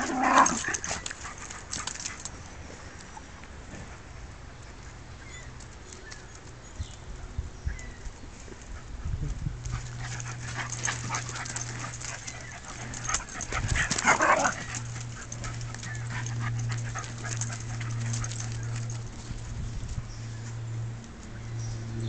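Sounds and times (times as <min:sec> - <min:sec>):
dogs scuffling: 0:09.6 - 0:20.7.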